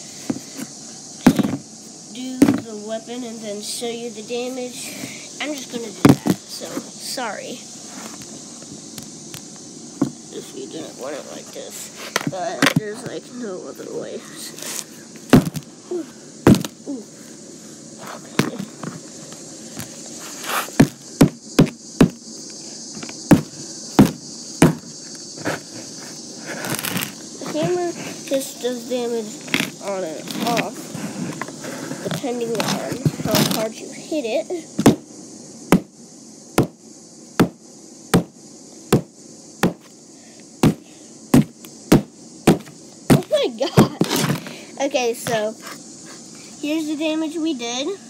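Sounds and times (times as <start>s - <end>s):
hammer striking a box: 23.3s - 24.9s, 38.9s - 39.9s, 41.4s - 43.3s.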